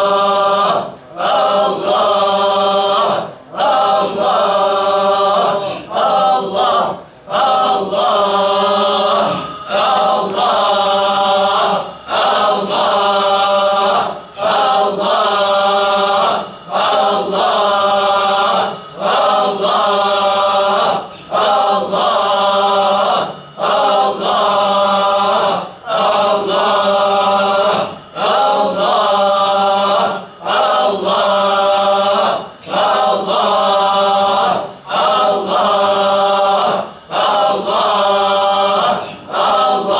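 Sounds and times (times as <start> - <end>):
men chanting in unison: 0.0 - 39.9.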